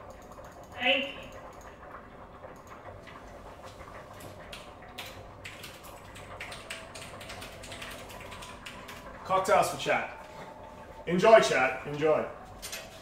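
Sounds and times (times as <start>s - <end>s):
typing on computer keyboard: 4.5s - 9.2s.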